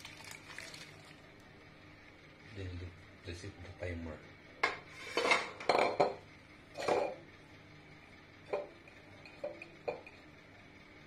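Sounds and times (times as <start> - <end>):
cooker pot clattering: 8.5 - 10.2.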